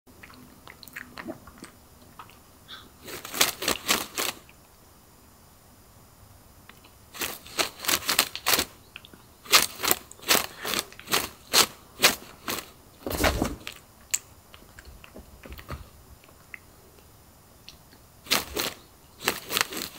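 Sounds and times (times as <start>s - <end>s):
quick sharp scratching strokes: 3.0s - 4.4s, 7.2s - 8.8s, 9.4s - 13.7s, 18.3s - 19.9s.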